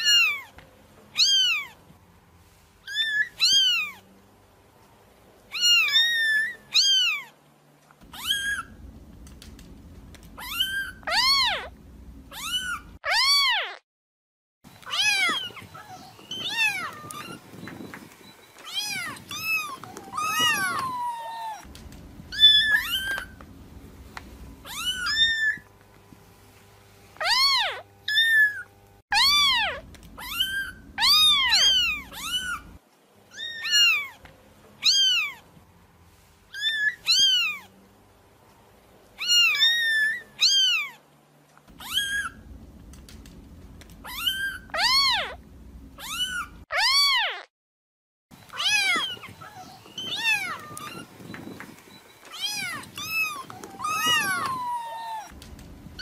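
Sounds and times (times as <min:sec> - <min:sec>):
faint low hum: 0:00.0 - 0:13.0, 0:14.7 - 0:46.6, 0:48.4 - 0:56.0
kitten meowing: 0:01.2 - 0:01.7, 0:02.9 - 0:04.0, 0:05.5 - 0:07.3, 0:08.1 - 0:08.8, 0:10.4 - 0:11.7, 0:12.3 - 0:13.8, 0:14.9 - 0:17.4, 0:18.6 - 0:21.6, 0:22.3 - 0:23.4, 0:24.6 - 0:25.6, 0:27.2 - 0:34.2, 0:34.8 - 0:35.4, 0:36.5 - 0:37.7, 0:39.2 - 0:41.0, 0:41.7 - 0:42.5, 0:44.0 - 0:45.4, 0:46.0 - 0:47.5, 0:48.5 - 0:51.1, 0:52.3 - 0:55.4.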